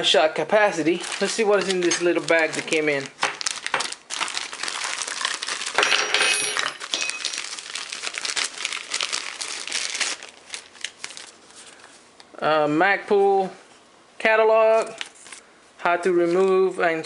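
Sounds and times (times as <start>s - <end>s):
plastic bag crinkling: 0.8s - 12.0s.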